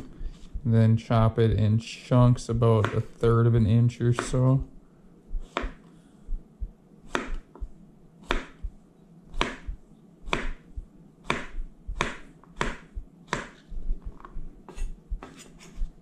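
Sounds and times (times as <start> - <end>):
knife chopping on wooden board: 2.7 - 3.1, 4.0 - 4.5, 5.4 - 5.8, 7.1 - 8.7, 9.3 - 15.5.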